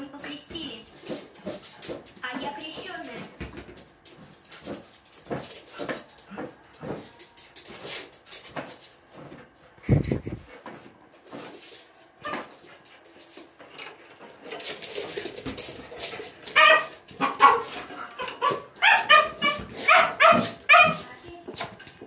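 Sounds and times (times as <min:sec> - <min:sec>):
small dog barking and yipping: 0:16.5 - 0:21.0.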